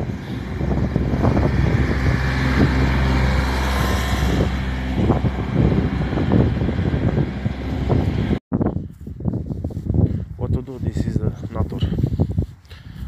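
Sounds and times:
vehicle engine running: 0.0 - 8.4
wind rumbling on microphone: 0.0 - 13.0.

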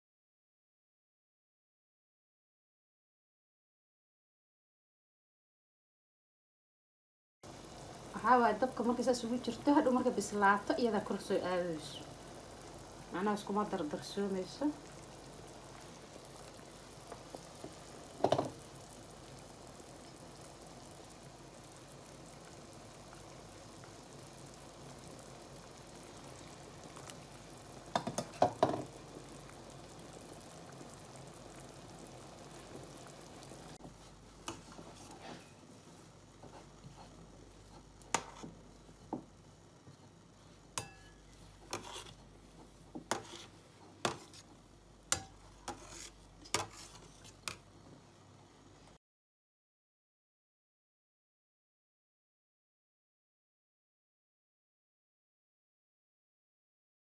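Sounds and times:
pot of water bubbling: 7.5 - 48.0
slotted spoon clinking on pot: 40.8 - 41.2.

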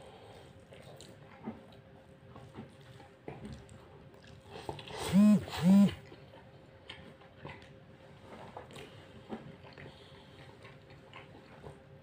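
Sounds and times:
chewing: 0.2 - 12.0
faint steady hum: 3.6 - 7.0.

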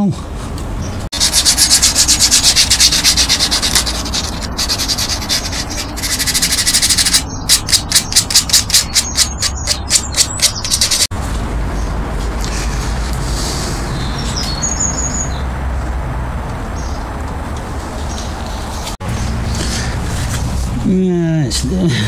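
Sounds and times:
hand sanding wood: 1.1 - 11.1.

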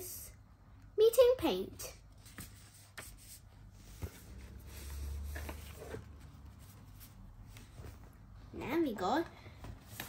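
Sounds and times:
paper rustling: 2.2 - 8.0, 9.7 - 10.0.

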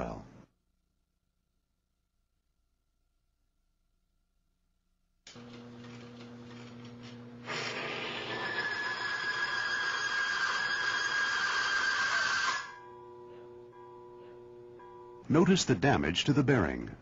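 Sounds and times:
metal grinding screech: 7.4 - 12.8
steady high whistle: 8.3 - 13.5.

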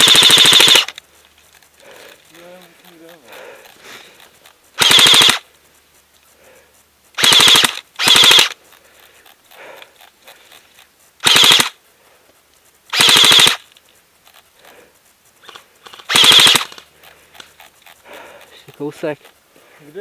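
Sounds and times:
airsoft gun firing bursts: 0.0 - 1.0, 4.8 - 5.5, 7.2 - 8.6, 11.2 - 11.8, 12.9 - 13.7, 15.4 - 16.9.

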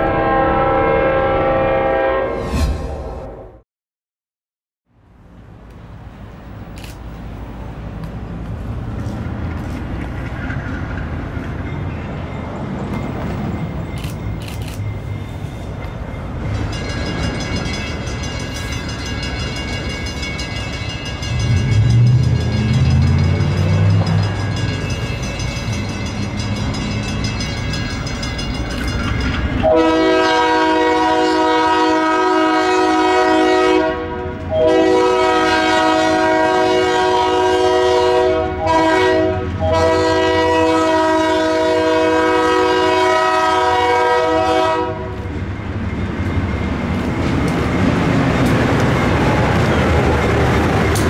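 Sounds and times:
locomotive air horn: 0.0 - 3.6, 29.6 - 45.2
diesel locomotive engine rumble: 5.0 - 51.0
train wheels clacking: 9.0 - 29.7, 45.1 - 51.0.

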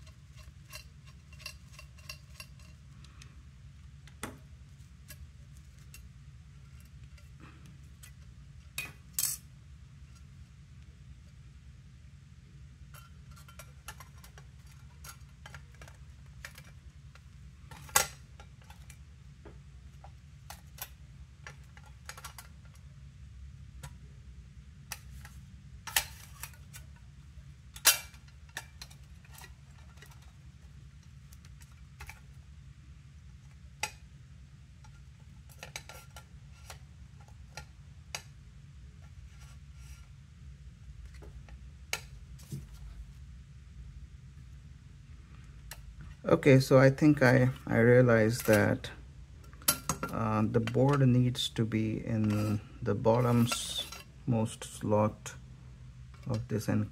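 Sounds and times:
metal parts clicking and clinking: 0.0 - 2.9, 8.8 - 9.5, 12.9 - 19.0, 20.0 - 22.8
faint low hum: 0.0 - 56.9.

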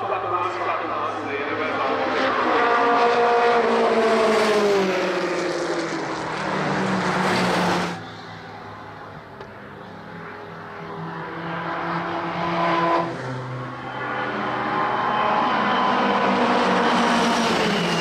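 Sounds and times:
racing car engines approaching: 0.0 - 18.0
racing car passing by: 0.2 - 9.1, 10.8 - 18.0.

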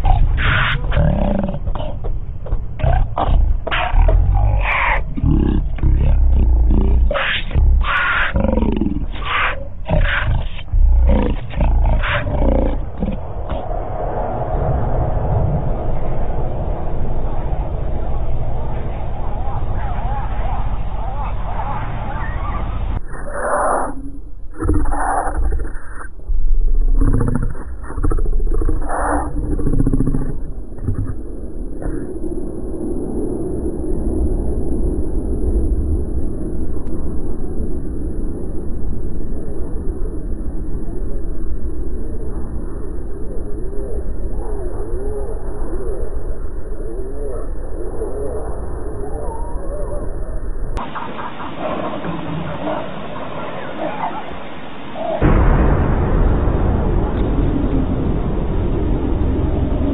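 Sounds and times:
lion snarling and roaring: 0.0 - 13.6, 22.2 - 26.1, 26.9 - 31.2
low rumble: 0.0 - 59.9.

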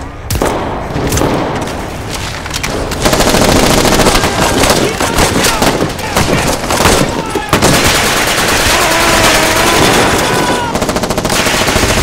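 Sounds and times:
rifle shots: 2.6 - 12.0
machine-gun bursts: 3.0 - 12.0.

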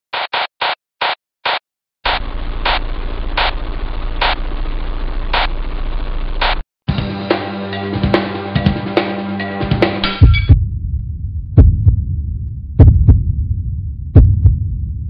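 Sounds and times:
low hum: 2.1 - 6.6, 10.2 - 15.0
static hiss: 2.1 - 6.6.

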